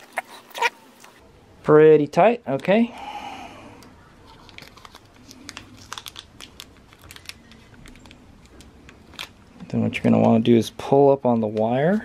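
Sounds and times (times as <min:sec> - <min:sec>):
plastic baggie crinkling: 0:04.2 - 0:10.4.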